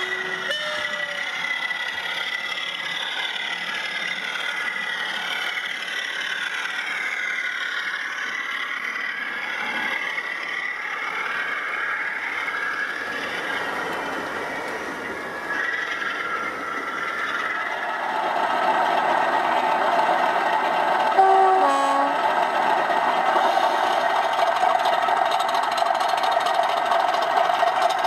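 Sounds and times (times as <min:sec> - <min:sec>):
model train two-tone horn: 0:00.0 - 0:01.3, 0:21.2 - 0:22.2
diesel engine sound: 0:00.0 - 0:28.0
model train whirring on track: 0:00.0 - 0:28.0.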